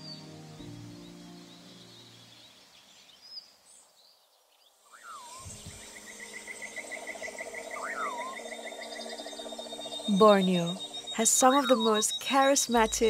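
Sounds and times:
background music: 0.0 - 2.8, 5.6 - 13.0
rising and falling animal call: 4.9 - 12.0
high chirps: 4.9 - 13.0
chorus of calling animals: 5.9 - 12.7.

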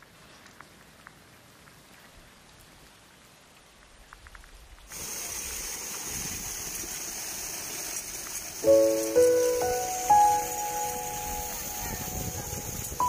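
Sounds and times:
water jet gushing onto ground: 4.8 - 13.0.

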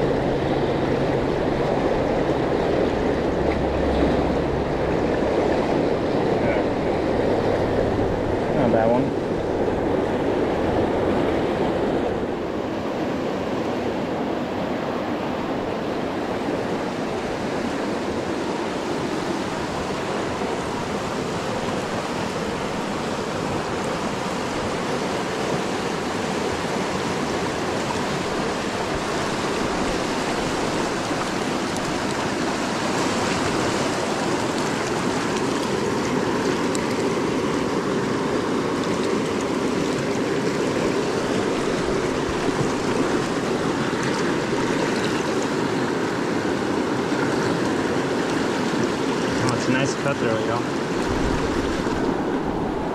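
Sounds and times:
river rushing over rocks: 0.0 - 52.9.

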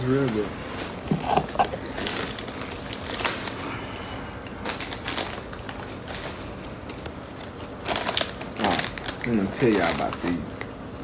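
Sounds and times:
potato chips being chewed: 7.0 - 10.2.

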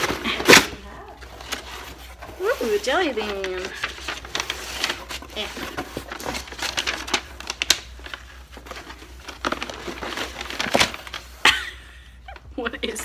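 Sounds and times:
paper packaging crinkling: 0.0 - 13.0.

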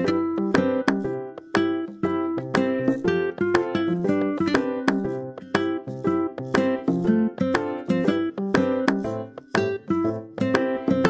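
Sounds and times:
plucked string music: 0.0 - 11.0.

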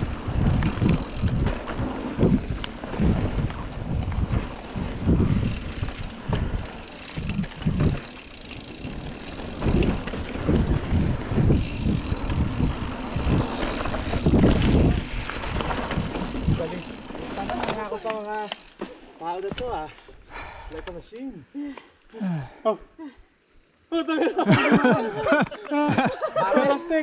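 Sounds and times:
wind buffeting microphone: 0.0 - 17.5
bike knocking and rattling: 0.0 - 21.3
bike tyres rolling over dirt: 0.0 - 21.4.

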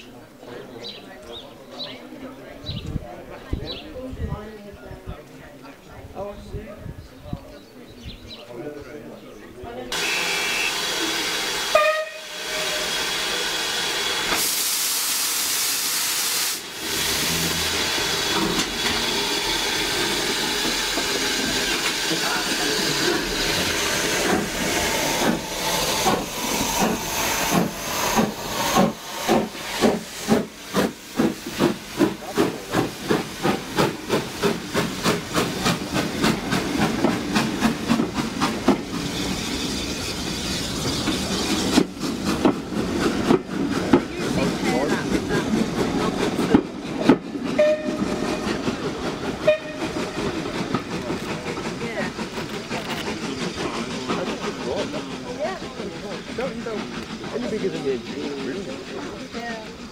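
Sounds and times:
steam locomotive hissing: 9.9 - 59.9
locomotive exhaust chuffs: 16.7 - 59.9.

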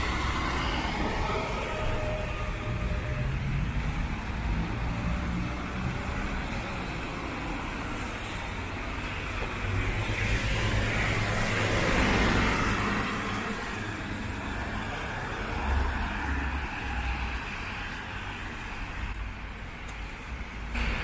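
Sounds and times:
low traffic rumble: 0.0 - 21.0.

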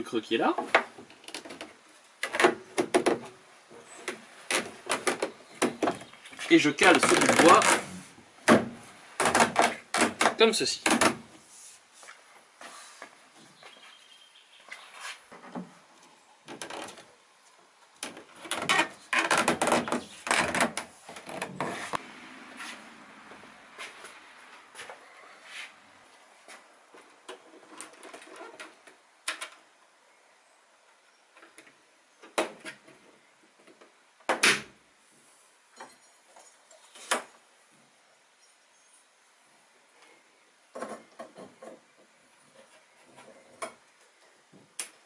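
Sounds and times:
wooden trunk knocking and clunking: 0.6 - 3.4, 4.0 - 6.2.

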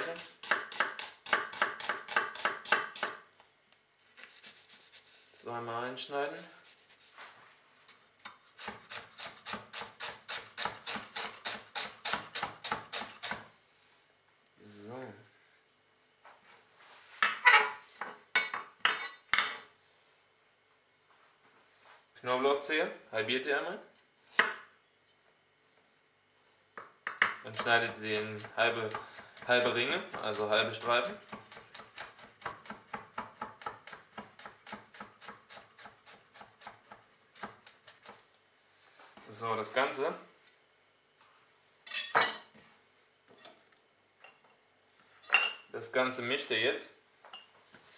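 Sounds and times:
knife chopping on wooden board: 0.0 - 3.2.

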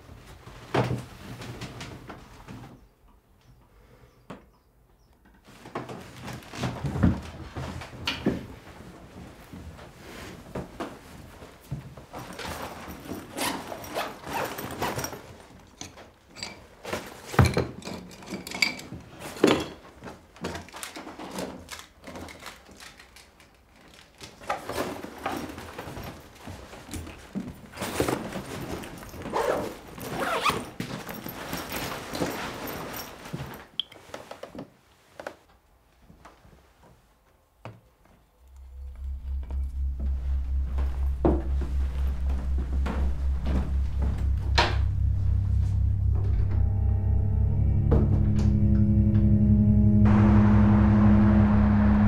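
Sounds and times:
clothing rustling: 24.6 - 37.3.

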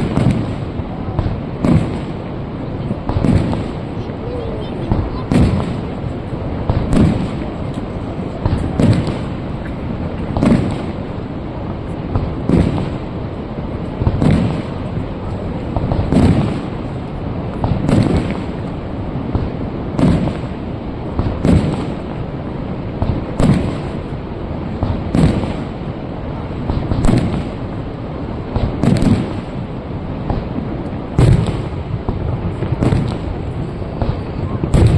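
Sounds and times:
constant rushing noise: 0.0 - 34.9
firework shells bursting: 4.8 - 13.2, 15.7 - 22.3, 26.6 - 27.9, 28.5 - 34.9.

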